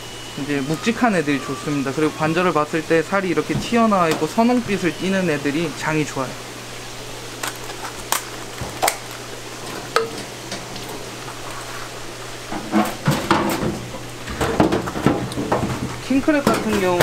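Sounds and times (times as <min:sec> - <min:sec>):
crab shells clattering in a metal sink: 0:12.6 - 0:17.0.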